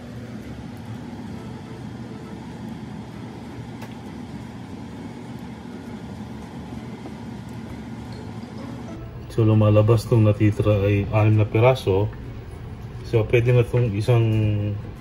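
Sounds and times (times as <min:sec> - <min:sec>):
low background rumble: 0:04.8 - 0:15.0.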